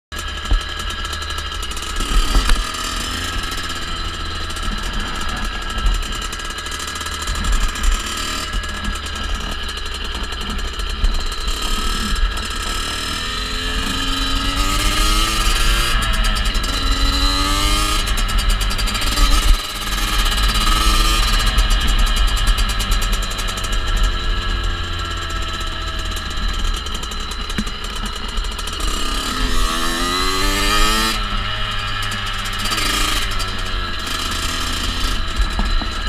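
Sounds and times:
dirt bike engine running: 0.1 - 36.0.

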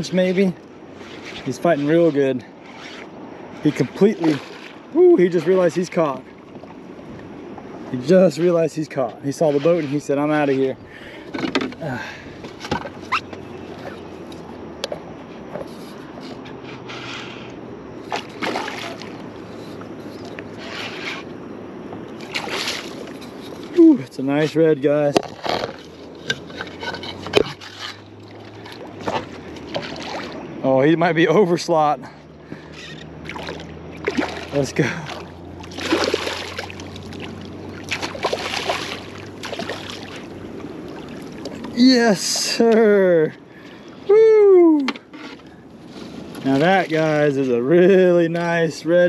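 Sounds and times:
low steady hum: 0.0 - 49.0
water around a boat: 0.0 - 49.0
wind: 0.0 - 49.0
fish splashing at the surface: 2.7 - 6.0, 18.0 - 19.2, 22.2 - 23.2, 27.4 - 30.5, 33.2 - 41.7.

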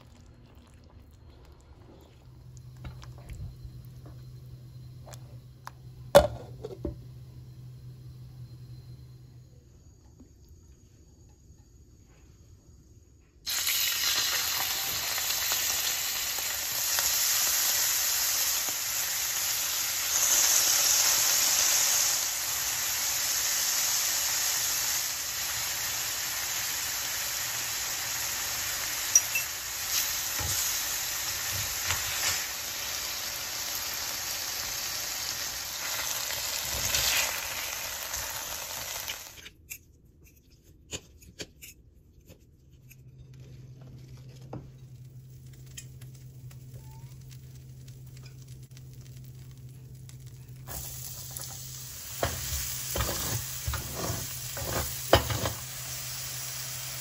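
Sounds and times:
food sizzling in a pan: 13.5 - 39.4, 44.9 - 57.0.

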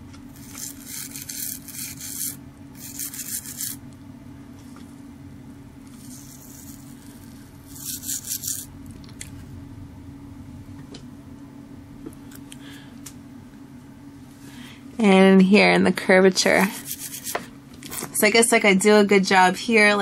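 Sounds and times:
steady low hum: 0.0 - 20.0
scratchy rubbing: 0.4 - 3.8, 5.9 - 8.7, 16.6 - 17.4.

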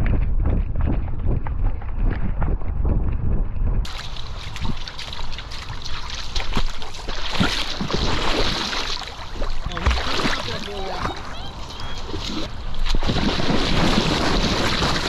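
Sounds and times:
water splashing and sloshing: 3.8 - 15.0.

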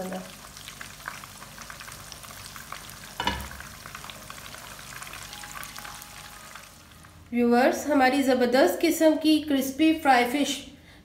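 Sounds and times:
fish sizzling in hot oil: 0.0 - 7.3.

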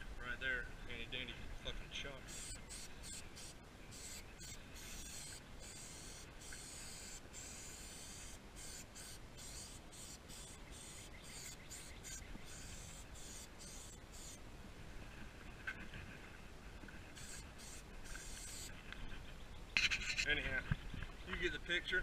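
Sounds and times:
aerosol spray can hissing: 2.3 - 14.4, 17.2 - 18.7.

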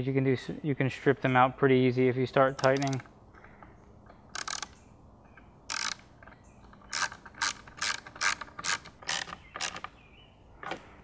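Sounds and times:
hand ratchet clicking: 2.6 - 3.1, 4.3 - 4.8, 5.7 - 6.1, 6.7 - 9.9.

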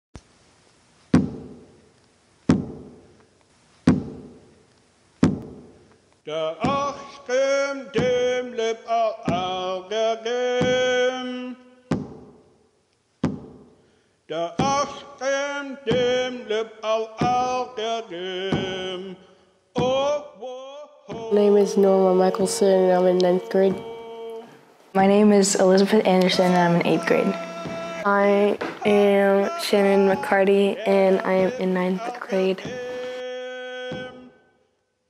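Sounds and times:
drum beaten slowly: 1.2 - 1.7, 2.5 - 3.0, 23.0 - 24.0, 25.0 - 33.1
person singing a chant: 6.3 - 11.7, 14.3 - 19.2, 19.8 - 34.5.

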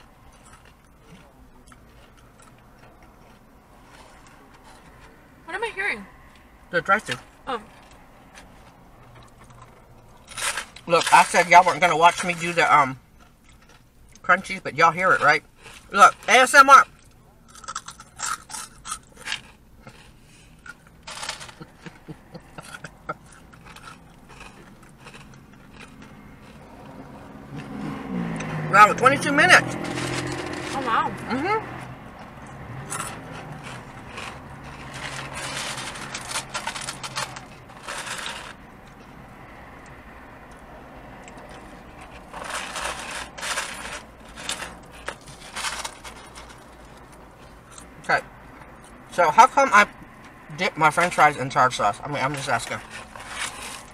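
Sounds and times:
crunchy food being chewed: 0.0 - 5.2, 7.8 - 11.2, 13.2 - 14.2, 15.2 - 28.6, 32.1 - 39.1
car engine rumble: 0.0 - 53.9
paper wrapping crinkling: 33.5 - 38.6, 42.2 - 47.0.

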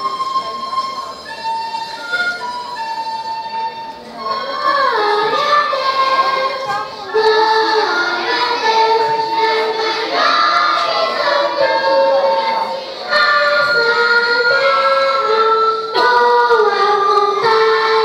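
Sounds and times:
children's choir singing: 4.2 - 18.0.

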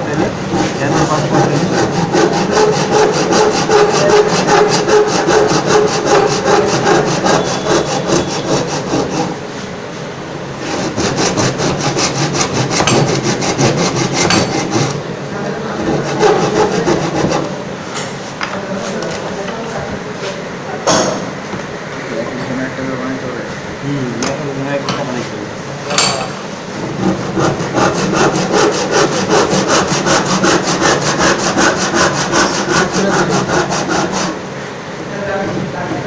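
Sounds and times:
hand saw cutting wood: 0.0 - 9.4, 10.6 - 15.0, 15.8 - 17.6, 27.0 - 34.4.

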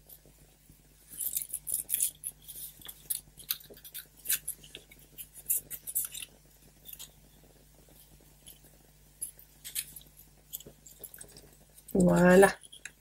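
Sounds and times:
paper rustling and crackling: 1.1 - 7.1.

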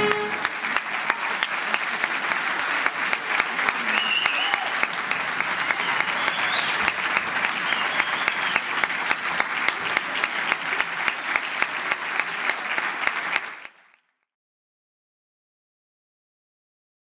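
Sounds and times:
audience applauding: 0.0 - 14.1.

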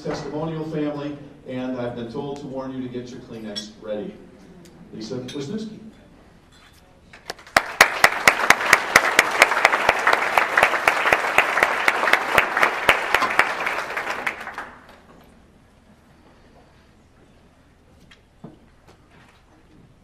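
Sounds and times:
sharp claps close by: 7.2 - 15.0
audience applauding: 7.3 - 15.1.

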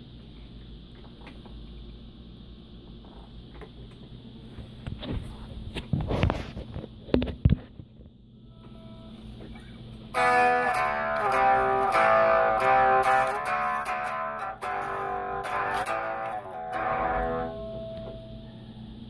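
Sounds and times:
low amplifier hum: 0.0 - 19.0
plucked guitar notes: 10.1 - 18.4.

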